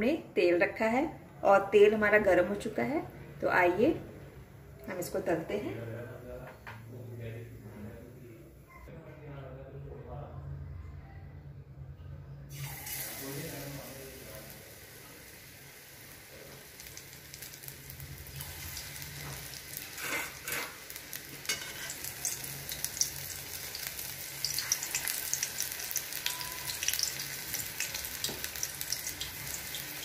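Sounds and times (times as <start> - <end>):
onion rings deep-frying in oil: 12.5 - 30.0.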